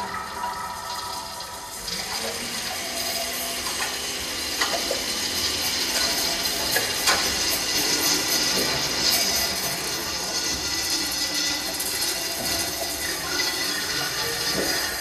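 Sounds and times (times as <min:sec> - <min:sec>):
water running and splashing: 0:00.0 - 0:15.0.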